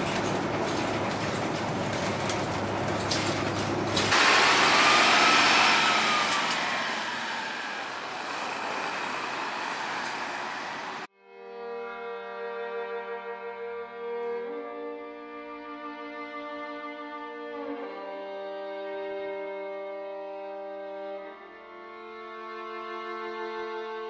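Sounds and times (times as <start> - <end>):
bus engine and road noise: 0.0 - 11.1
bus pulling away: 0.0 - 11.1
music: 11.1 - 24.0.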